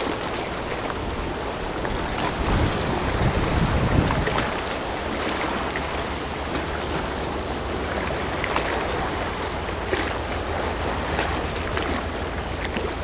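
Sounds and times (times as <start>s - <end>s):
wind on microphone: 0.0s - 7.2s
waves washing on rocky shore: 0.0s - 13.0s.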